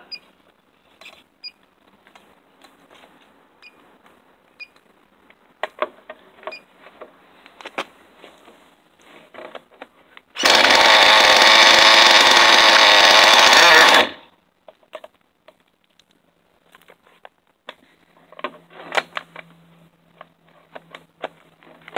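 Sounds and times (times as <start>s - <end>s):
electric starter spinning engine: 10.4s - 14.2s.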